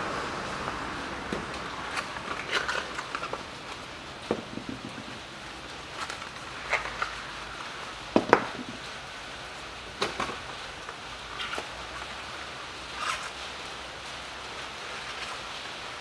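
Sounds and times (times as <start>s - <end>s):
small handling noises: 1.3s - 9.0s.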